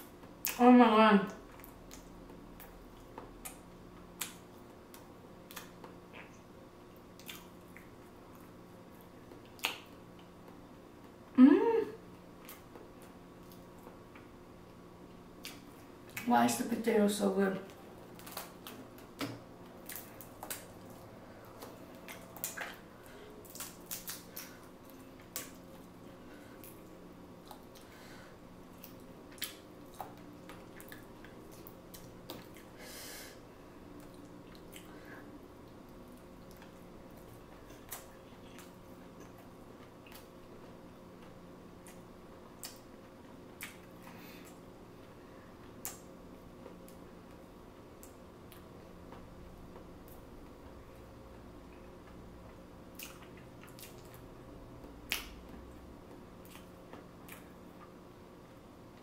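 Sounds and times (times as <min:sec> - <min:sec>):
chewing and mouth sounds: 0:01.3 - 0:11.2, 0:12.4 - 0:14.3, 0:15.1 - 0:16.3, 0:17.7 - 0:27.9, 0:28.6 - 0:32.8, 0:33.9 - 0:44.7, 0:51.7 - 0:55.8, 0:56.4 - 0:58.0.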